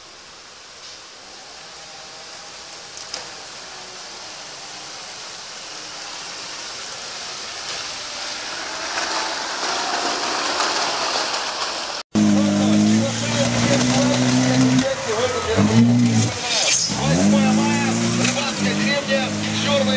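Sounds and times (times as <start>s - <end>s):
tyres hissing on water: 0.0s - 19.9s
faint engine: 8.0s - 19.9s.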